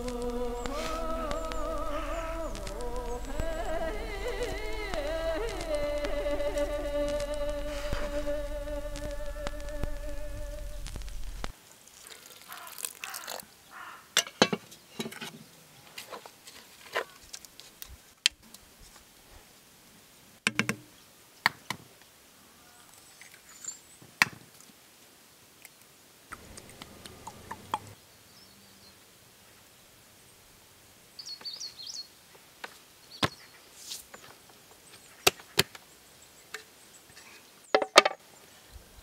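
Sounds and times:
background music: 0.0s - 11.5s
dried meat crackling and rustling: 0.0s - 14.0s, 15.8s - 17.9s.

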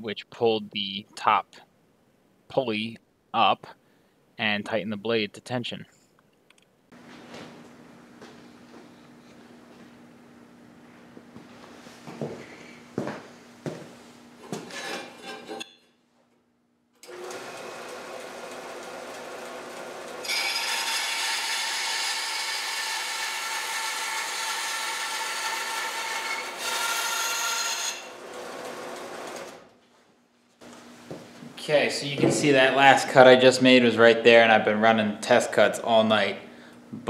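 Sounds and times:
bandsaw running: 17.0s - 29.7s
saw screeching through metal: 20.2s - 28.2s.

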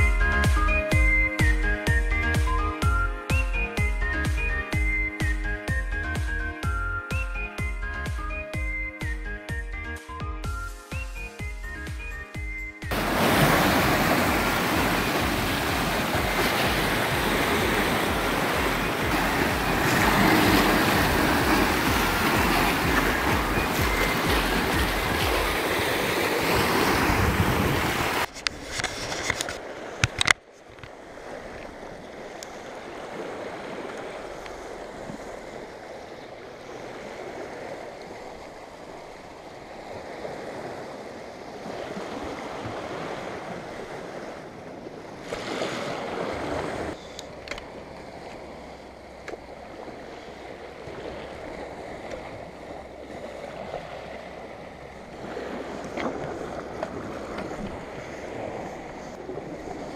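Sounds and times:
sea water lapping against rocks: 12.9s - 59.9s
wind on microphone: 12.9s - 59.9s.

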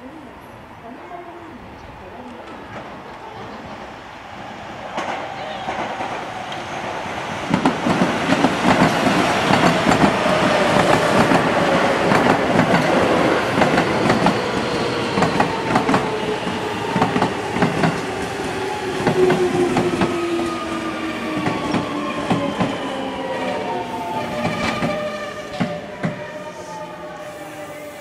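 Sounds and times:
train wheels clacking over rail joints: 7.5s - 16.1s.

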